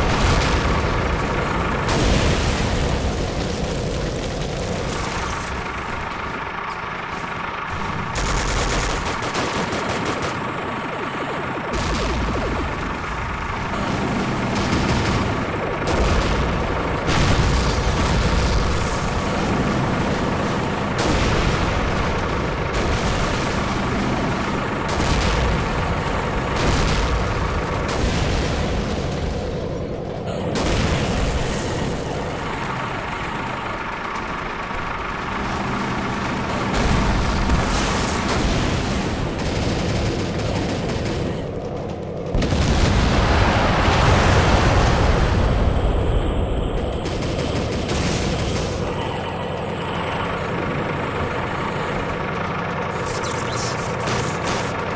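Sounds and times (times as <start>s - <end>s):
gunfire: 0.0s - 5.8s, 7.7s - 10.9s, 11.6s - 45.6s, 46.9s - 54.9s
explosions: 0.0s - 6.7s, 11.4s - 54.9s
tank engine running: 0.0s - 54.9s.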